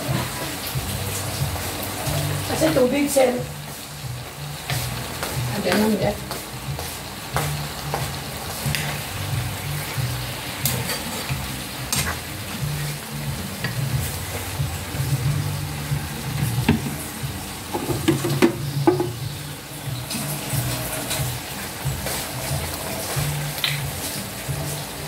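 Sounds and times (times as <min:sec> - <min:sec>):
food frying in a pan: 0:00.0 - 0:25.0
spatula scraping a pan: 0:10.6 - 0:14.1.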